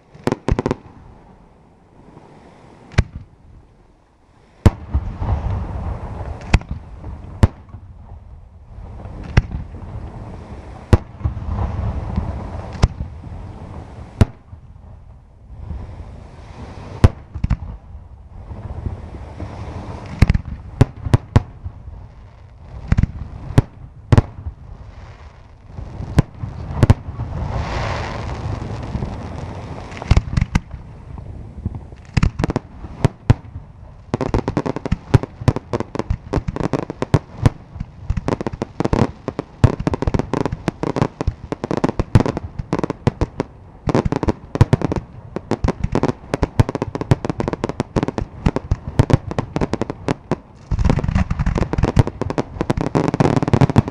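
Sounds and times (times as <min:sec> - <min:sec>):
firework crackle: 0:04.4 - 0:53.9
rushing hiss: 0:27.3 - 0:30.2.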